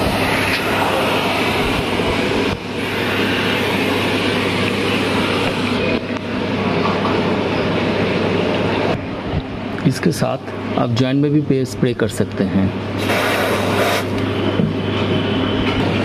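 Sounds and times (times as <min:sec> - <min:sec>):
aerosol spray hissing: 0:13.0 - 0:14.2.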